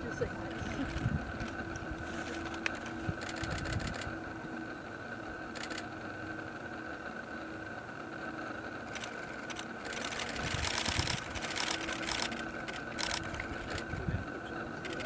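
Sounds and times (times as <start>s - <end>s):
wind rumble on microphone: 0.0s - 2.1s, 3.0s - 4.2s, 10.3s - 11.4s, 13.3s - 14.4s
camera shutter clicks: 8.9s - 13.8s.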